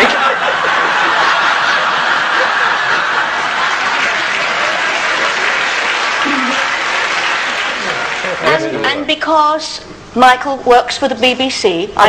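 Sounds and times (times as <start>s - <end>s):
audience laughing and clapping: 0.0s - 8.9s.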